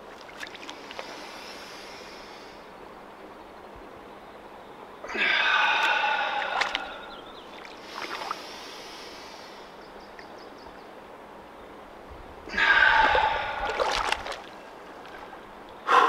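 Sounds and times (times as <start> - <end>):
creek trickling: 0.0 - 15.9
soft breath: 0.9 - 2.7, 7.8 - 9.8
man's loud voiced exhale: 5.1 - 7.0, 12.5 - 13.9.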